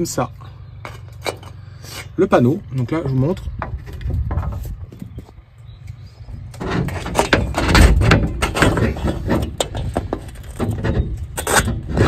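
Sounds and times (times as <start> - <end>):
metal clip scraping on frame: 6.5 - 12.0.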